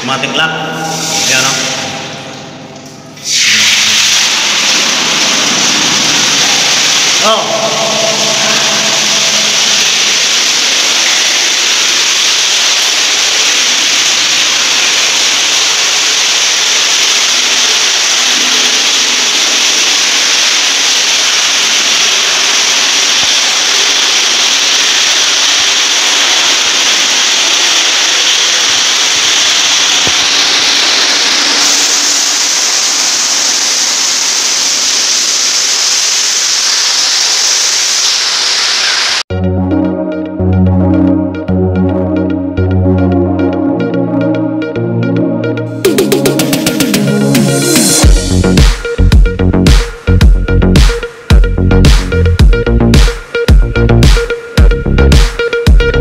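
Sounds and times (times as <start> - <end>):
water rushing into a tank: 3.2 - 39.2.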